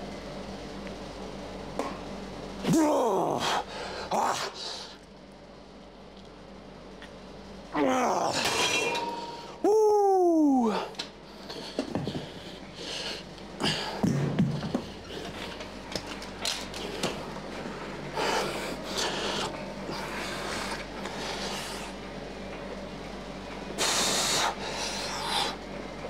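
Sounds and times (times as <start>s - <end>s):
steady low hum: 0.0s - 26.0s
heavy hissing breaths: 3.4s - 5.0s, 10.7s - 15.6s, 16.8s - 22.0s, 23.8s - 25.6s.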